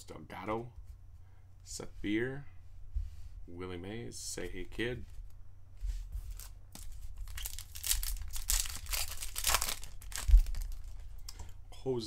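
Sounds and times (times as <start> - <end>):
card pack wrapper crinkling and ripping: 6.3 - 11.2.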